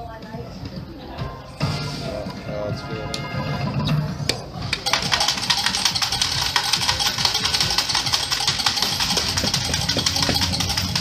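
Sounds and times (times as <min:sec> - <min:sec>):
slot machine game music: 0:01.5 - 0:11.0
slot machine reels ticking: 0:04.7 - 0:11.0.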